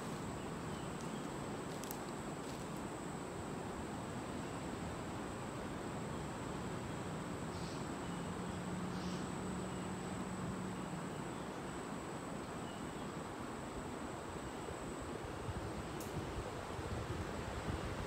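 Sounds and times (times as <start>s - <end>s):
high insect trill: 0.0s - 16.9s
soft hiss: 0.0s - 18.0s.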